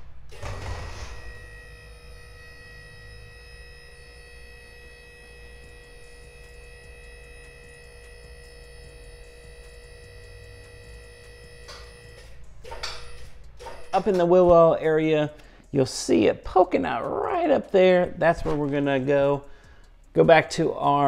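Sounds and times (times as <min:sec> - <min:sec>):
hydraulic pump motor humming: 0:00.3 - 0:14.1.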